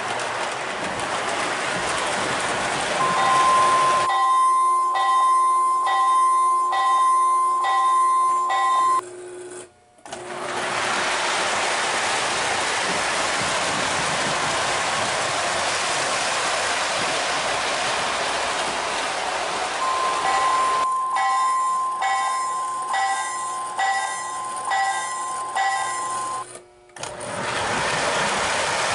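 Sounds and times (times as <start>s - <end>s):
model train wheels rumbling on track: 0.0s - 4.1s, 10.4s - 21.4s, 27.0s - 28.9s
electronic locomotive bell ringing: 3.0s - 9.0s, 19.8s - 26.4s.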